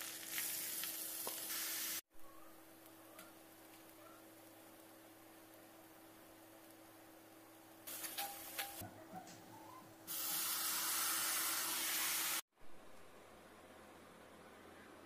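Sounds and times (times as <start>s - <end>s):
pan sizzling: 0.0s - 2.0s, 7.8s - 8.8s, 10.1s - 12.4s.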